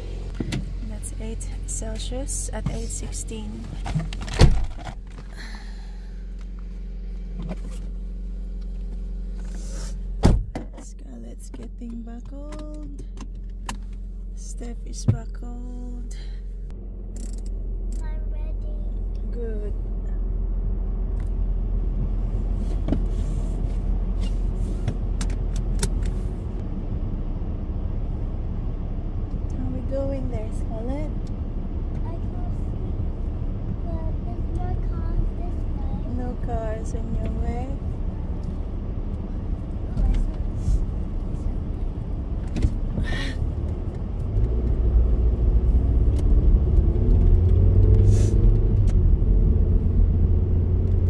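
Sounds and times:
car engine idling: 0:00.0 - 0:51.0
seatbelt clicks and rattles: 0:17.1 - 0:17.6, 0:25.2 - 0:26.2.

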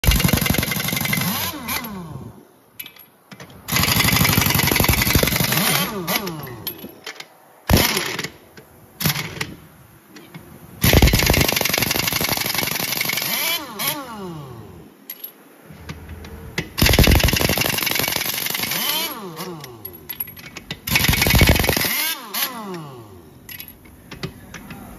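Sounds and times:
impact wrench hammering: 0:00.0 - 0:01.9, 0:03.7 - 0:06.9, 0:20.2 - 0:22.1.

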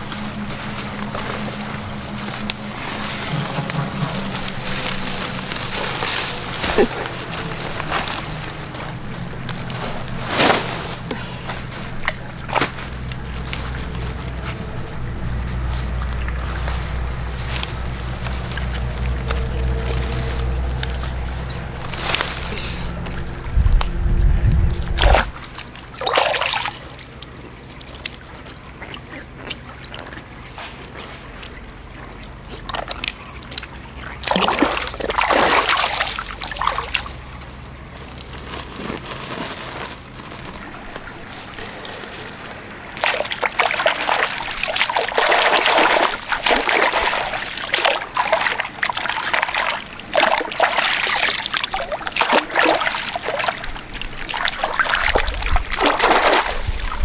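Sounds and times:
stream water splashing: 0:24.9 - 0:30.0, 0:32.5 - 0:37.3, 0:40.3 - 0:57.0.

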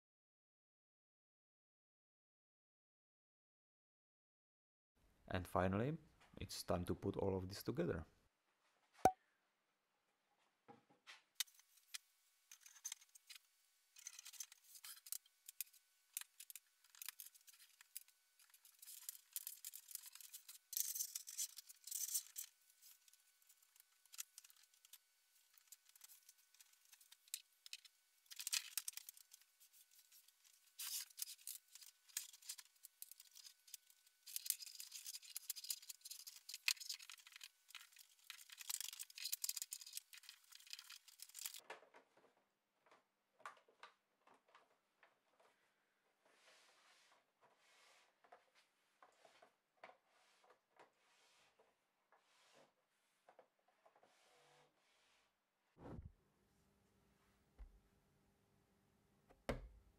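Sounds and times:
hands handling cables and plastic parts: 0:14.0 - 0:45.5.

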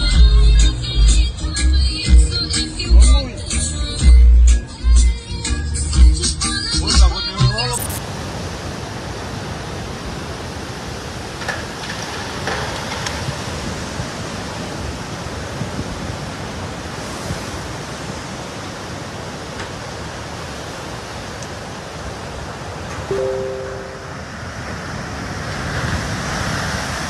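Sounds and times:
churning floodwater rushing: 0:08.0 - 0:23.1, 0:24.3 - 0:27.0.

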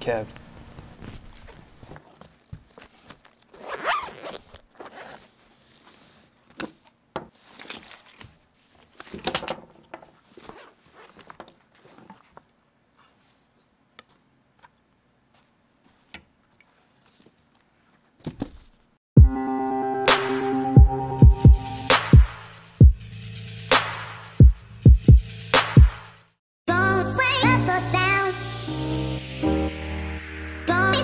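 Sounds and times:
zipper on nylon case: 0:03.3 - 0:05.5, 0:10.4 - 0:12.1
metallic clinks of gear set down: 0:07.5 - 0:10.4.

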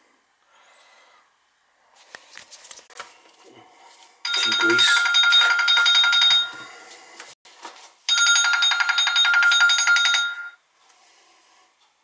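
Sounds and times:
phone ringtone trilling: 0:04.3 - 0:06.7, 0:08.1 - 0:10.6.

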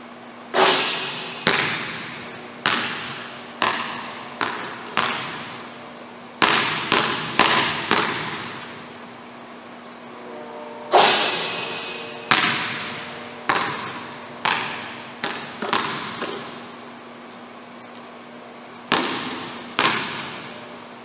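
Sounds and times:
basketball bouncing on wooden floor: 0:01.4 - 0:05.7, 0:06.4 - 0:08.7, 0:12.3 - 0:16.6, 0:18.9 - 0:20.6.

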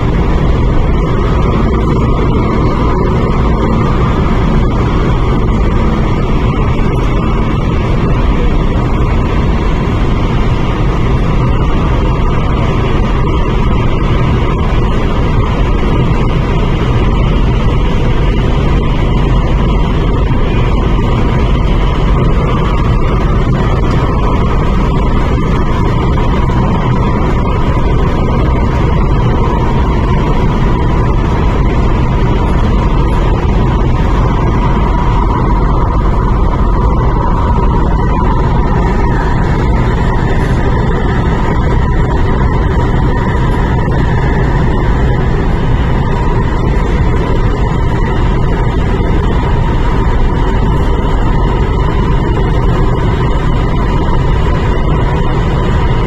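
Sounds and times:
steady high hum: 0:00.0 - 0:56.0
train wheels rumbling on rail: 0:00.0 - 0:56.0.

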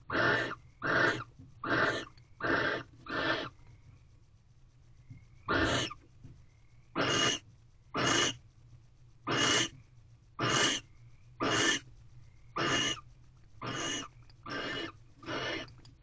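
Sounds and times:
barn owl hissing: 0:00.0 - 0:03.6, 0:05.4 - 0:06.0, 0:06.9 - 0:08.4, 0:09.2 - 0:09.8, 0:10.4 - 0:11.9, 0:12.5 - 0:15.8.

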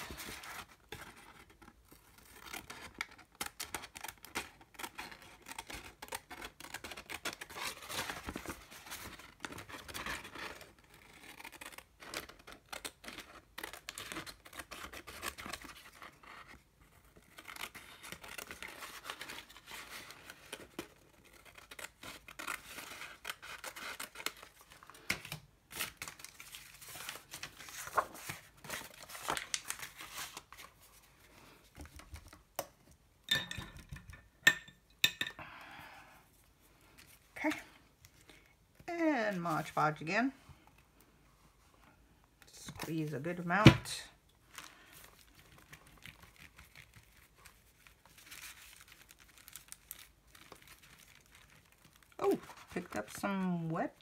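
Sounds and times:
paper crinkling: 0:00.0 - 0:32.5, 0:44.4 - 0:54.0.

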